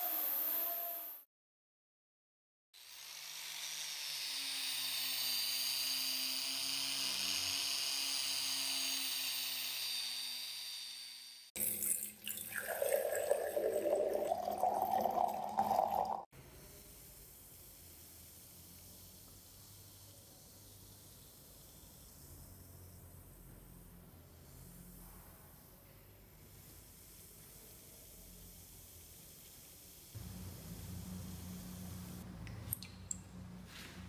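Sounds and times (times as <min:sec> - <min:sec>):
liquid pouring and splashing: 0:11.6 - 0:16.3
low motor hum: 0:30.2 - 0:34.0.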